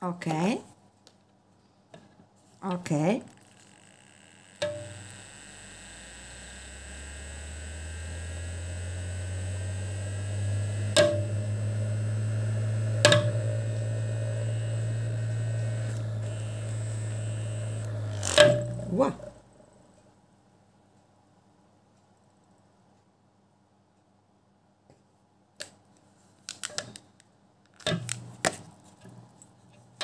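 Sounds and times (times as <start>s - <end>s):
electric motor hum: 3.3s - 20.0s
faint rising whine: 4.1s - 20.1s
sharp knocks: 11.0s - 11.4s, 13.0s - 13.5s.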